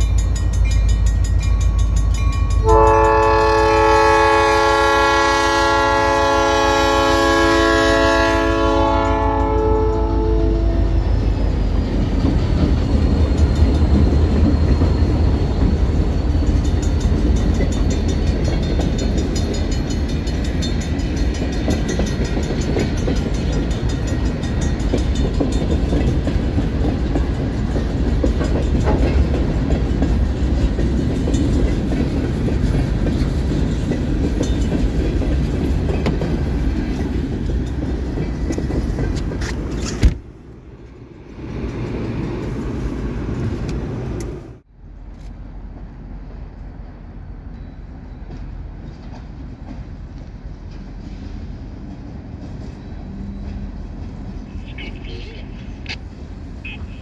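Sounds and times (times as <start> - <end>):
locomotive air horn: 2.6 - 11.0
train wheel clatter: 11.0 - 40.2, 47.4 - 54.4.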